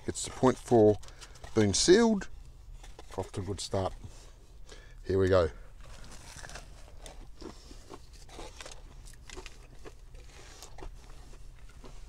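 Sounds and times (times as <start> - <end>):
pastry crunching while chewing: 5.7 - 12.0.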